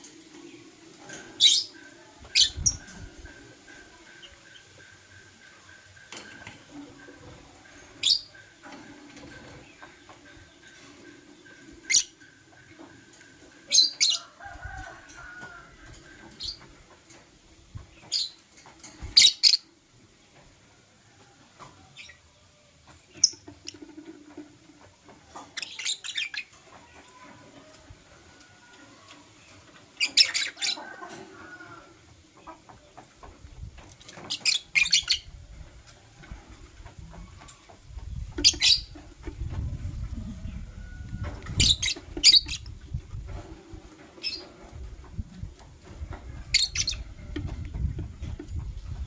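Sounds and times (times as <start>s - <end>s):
lovebirds chirping: 25.4s - 26.6s, 34.1s - 35.4s, 37.1s - 39.1s, 41.4s - 42.8s, 46.5s - 47.2s.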